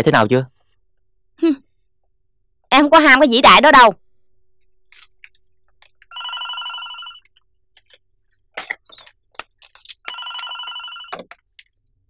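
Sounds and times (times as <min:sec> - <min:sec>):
desk telephone ringing: 0:06.1 - 0:07.2, 0:10.1 - 0:11.3.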